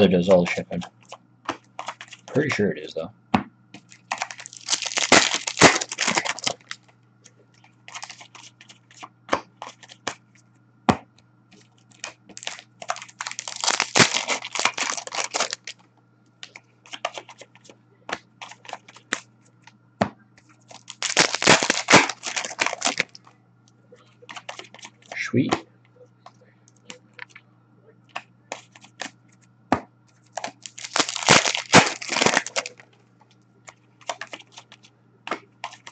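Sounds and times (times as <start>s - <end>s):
wrapper tearing and crinkling: 3.9s - 6.8s, 7.9s - 8.5s, 11.9s - 15.8s, 20.7s - 23.2s, 30.4s - 32.8s.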